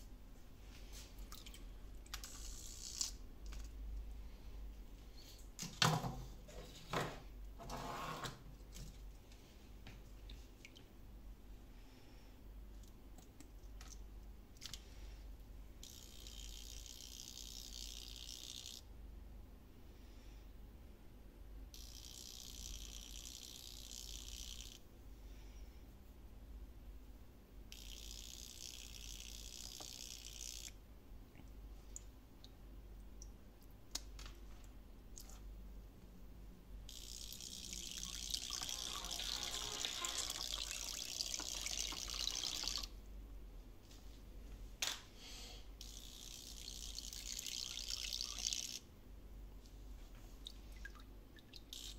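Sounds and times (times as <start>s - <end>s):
small splashes: 1.2s - 1.7s
water rushing into a pot: 37.3s - 42.9s.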